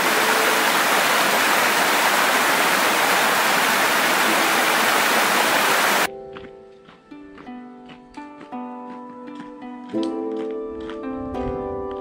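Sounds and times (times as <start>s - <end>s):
creek rushing over rocks: 0.0s - 6.1s.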